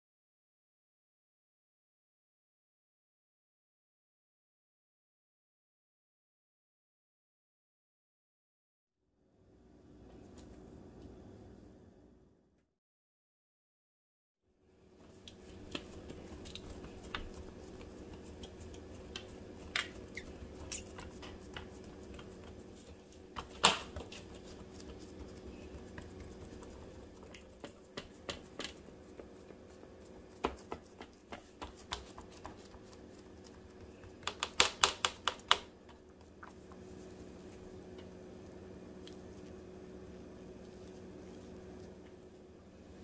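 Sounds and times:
steady hum: 14.7 - 43.0.

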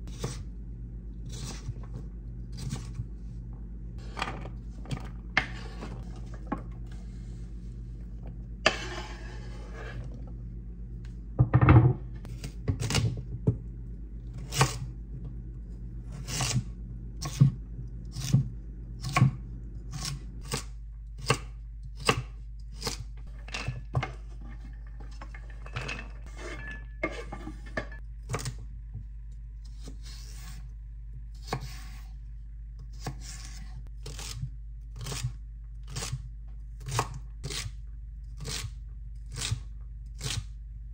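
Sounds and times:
knife scraping into metal tray: 8.6 - 10.2, 23.4 - 28.0
knife chopping on wooden board: 18.2 - 23.0.

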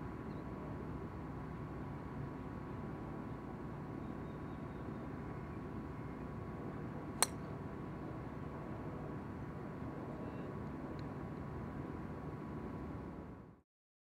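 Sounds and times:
faint hum: 0.0 - 13.6
golf club striking ball: 7.2 - 7.6.

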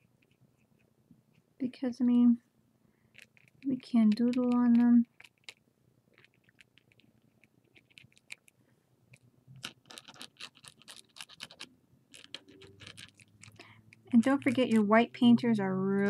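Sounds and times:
pen scratching on paper: 9.1 - 15.4.

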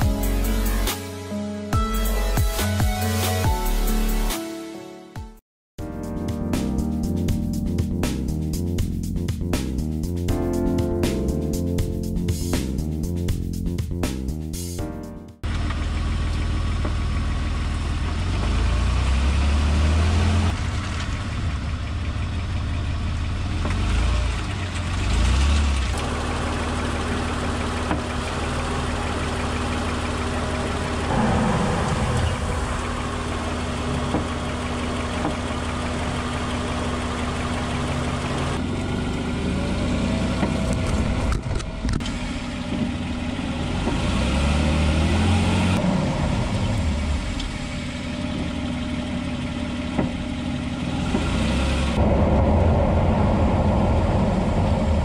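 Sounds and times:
car road and engine noise: 6.7 - 55.0
suspension clunk: 15.4 - 17.8, 23.2 - 38.7, 40.2 - 44.2, 46.5 - 55.0.

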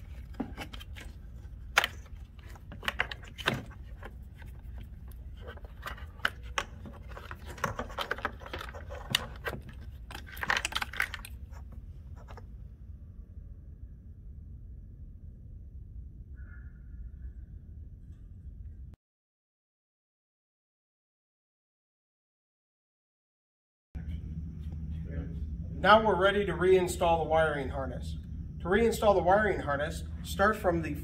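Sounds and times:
plastic connectors rattling and scraping: 0.0 - 12.4
low hum: 0.0 - 19.0, 24.0 - 31.0.

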